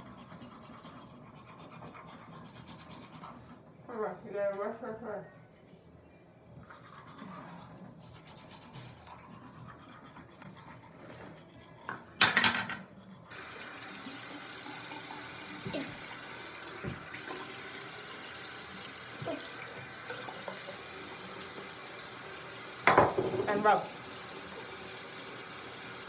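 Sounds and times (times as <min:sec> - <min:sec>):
sink tap running: 0:13.3 - 0:26.0.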